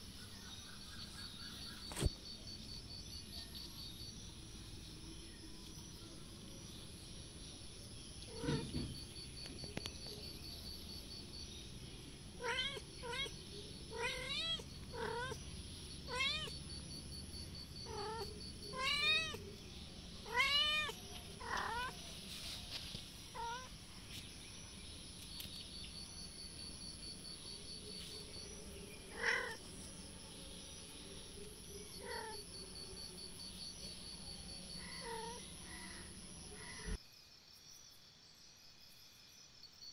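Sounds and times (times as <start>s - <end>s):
kitten mewing: 12.4s - 15.4s, 16.1s - 16.5s, 17.8s - 19.4s.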